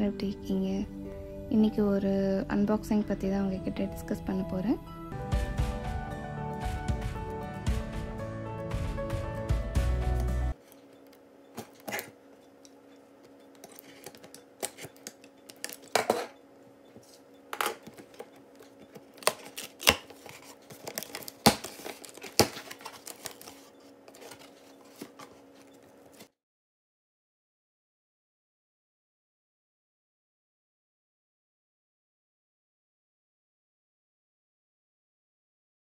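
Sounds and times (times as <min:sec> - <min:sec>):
intro music: 0:00.1 - 0:10.6
knife cutting packing tape: 0:13.6 - 0:16.2, 0:17.6 - 0:25.4
cardboard clicks and knocks: 0:18.9 - 0:25.4.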